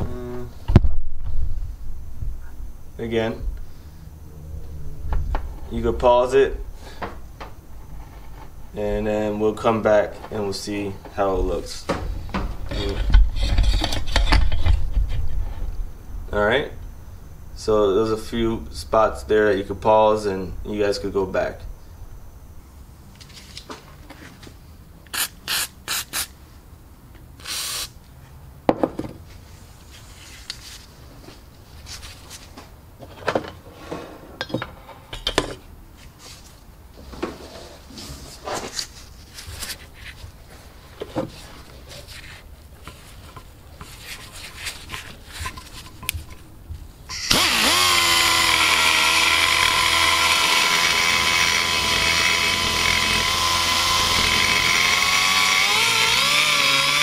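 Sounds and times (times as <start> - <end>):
die grinder high whine: 47.1 - 57.0.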